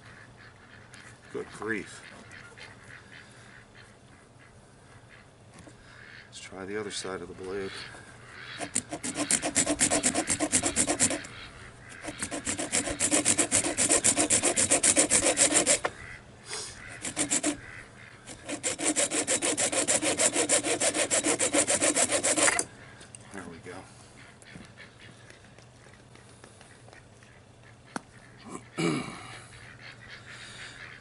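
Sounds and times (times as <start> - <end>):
hacksaw sawing metal: 8.6 - 11.3, 11.9 - 15.9, 16.9 - 17.7, 18.3 - 22.7.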